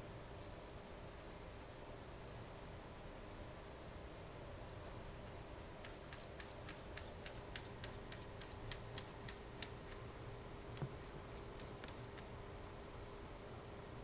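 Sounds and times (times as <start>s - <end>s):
cat scratching in plastic litter box: 5.8s - 10.0s, 11.4s - 12.3s.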